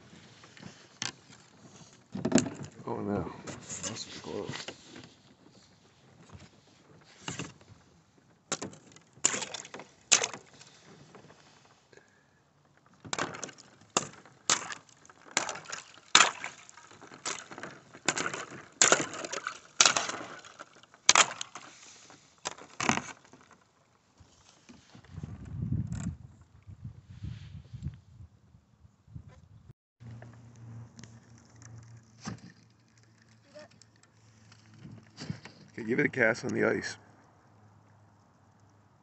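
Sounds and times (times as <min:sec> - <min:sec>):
thin ice cracking and shattering: 0:08.5 - 0:10.6, 0:13.1 - 0:21.8, 0:22.4 - 0:23.6.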